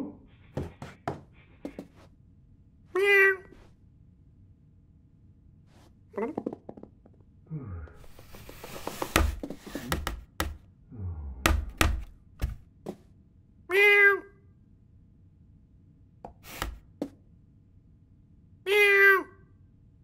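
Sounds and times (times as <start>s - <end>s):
cat meowing: 3.0s - 3.6s.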